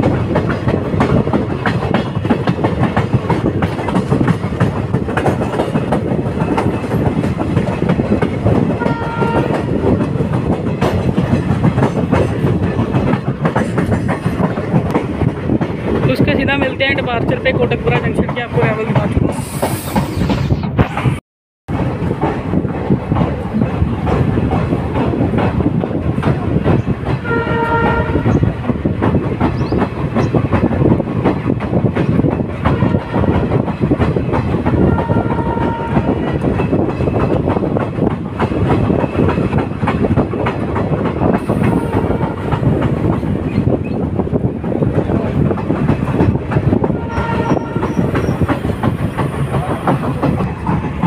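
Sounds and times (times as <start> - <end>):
train wheels clattering: 0.0 - 21.0, 21.7 - 51.0
train running noise: 0.0 - 51.0
train horn: 8.8 - 9.7, 27.2 - 28.4, 32.7 - 33.5, 34.8 - 36.3, 41.6 - 42.6, 46.8 - 48.1.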